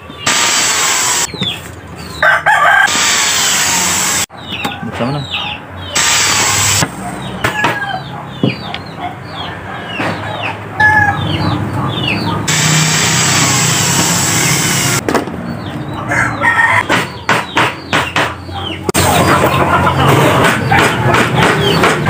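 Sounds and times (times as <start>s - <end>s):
electric drill boring: 0.3s - 1.3s, 2.9s - 4.3s, 6.0s - 6.8s, 12.5s - 15.0s
chickens clucking: 4.2s - 12.6s, 15.0s - 22.0s.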